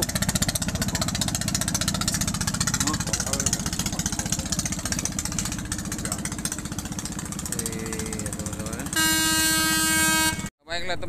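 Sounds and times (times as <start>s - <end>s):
boat engine knocking: 0.0s - 10.5s
loud horn blast: 8.8s - 10.5s.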